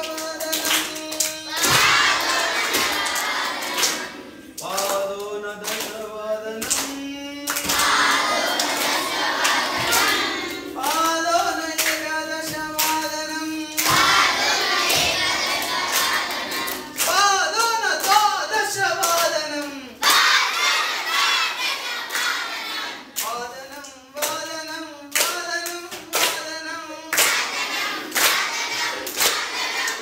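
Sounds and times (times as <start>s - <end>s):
hands clapping in time: 0.0s - 6.0s, 6.6s - 18.3s
children singing together: 0.1s - 4.6s, 7.5s - 11.6s, 13.8s - 17.1s, 20.0s - 23.2s, 27.1s - 30.0s.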